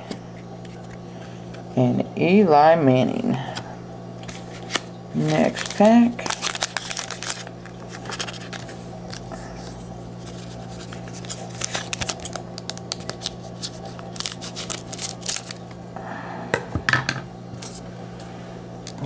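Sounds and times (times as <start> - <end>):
low hum: 0.0 - 19.0
foil card pack crinkling: 4.2 - 15.7.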